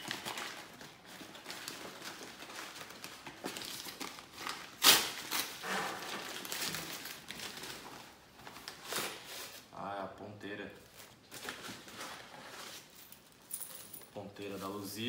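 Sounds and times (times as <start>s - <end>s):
paper tearing and crumpling: 0.0s - 8.0s, 8.6s - 9.7s
loud sharp paper rip: 4.7s - 7.0s.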